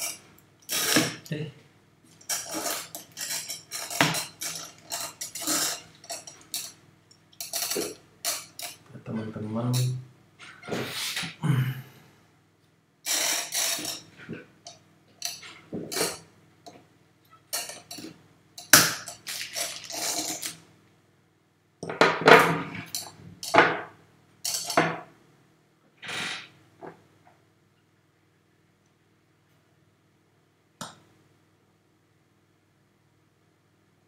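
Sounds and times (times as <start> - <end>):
small objects clinking on desk: 17.5 - 20.6, 24.5 - 24.9.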